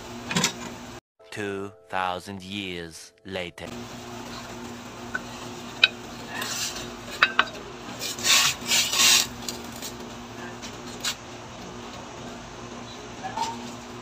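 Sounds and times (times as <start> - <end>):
steady low hum: 3.7 - 14.0
stirring vegetables in a pot: 3.9 - 10.1
wooden spatula scraping a plate: 6.2 - 9.4
wood tapping on plate and pot: 7.1 - 7.6.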